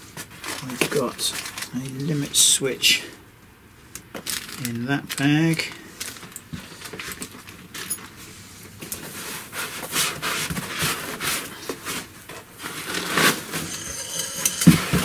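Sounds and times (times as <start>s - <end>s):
foam and cardboard scraping: 9.0s - 15.0s.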